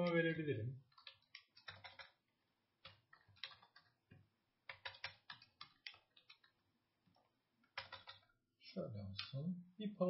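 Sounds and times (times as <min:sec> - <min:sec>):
typing on keyboard: 0:00.0 - 0:02.2, 0:02.8 - 0:04.0, 0:04.6 - 0:08.3.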